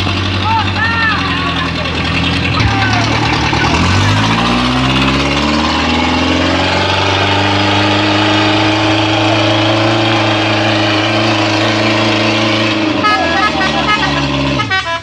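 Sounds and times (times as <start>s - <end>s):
truck engine running: 0.0s - 15.0s.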